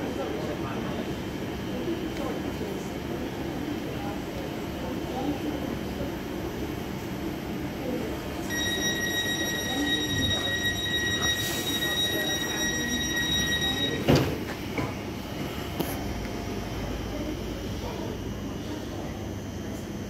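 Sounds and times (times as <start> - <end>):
high warning tone: 8.4 - 14.4.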